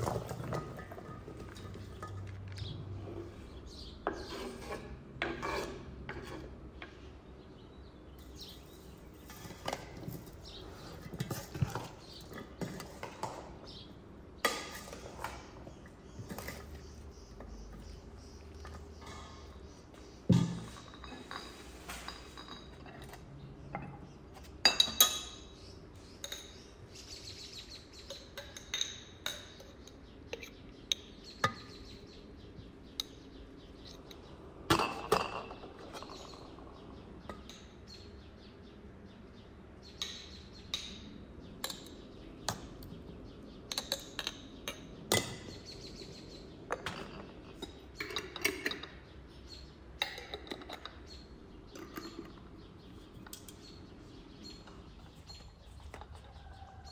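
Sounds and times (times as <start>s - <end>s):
glass jars clinking: 0.0s - 2.7s, 14.4s - 25.6s, 28.1s - 31.8s, 33.9s - 36.7s, 46.7s - 49.0s, 50.0s - 52.5s.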